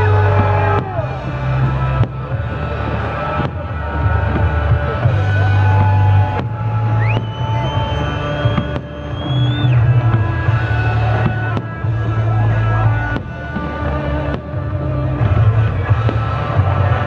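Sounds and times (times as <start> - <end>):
music with heavy bass line: 0.0 - 17.0.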